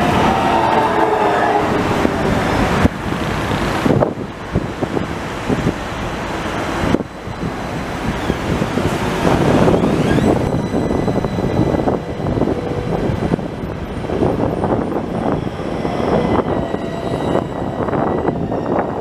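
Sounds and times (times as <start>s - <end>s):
tram wheels rumbling on rails: 0.0s - 19.0s
faint whine: 6.9s - 19.0s.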